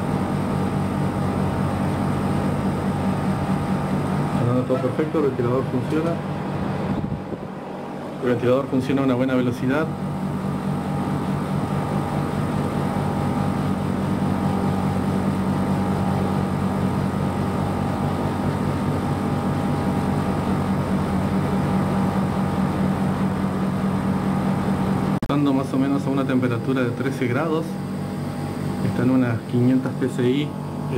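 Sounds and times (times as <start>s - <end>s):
air conditioner unit humming: 0.0s - 30.9s.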